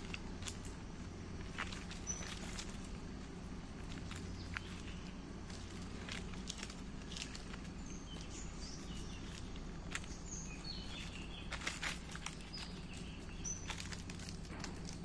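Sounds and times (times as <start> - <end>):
bicycle rolling on dirt path: 0.0 - 15.0
bird chirps: 1.7 - 2.9, 7.0 - 14.3.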